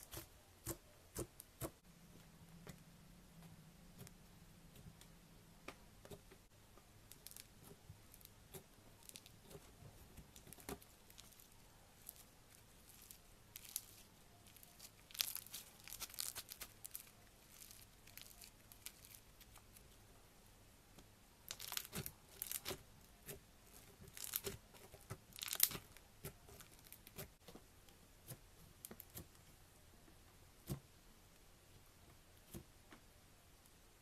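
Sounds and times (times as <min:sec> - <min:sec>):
pressing soft slime: 0:00.0 - 0:02.8, 0:03.4 - 0:20.1, 0:20.9 - 0:31.1
slime crackling and popping: 0:07.1 - 0:19.9, 0:21.4 - 0:27.4.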